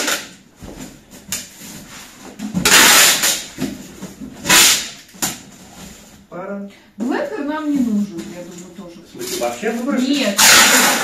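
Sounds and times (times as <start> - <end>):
packing tape ripping off roll: 2.6 - 3.6, 4.4 - 5.4, 10.4 - 11.0.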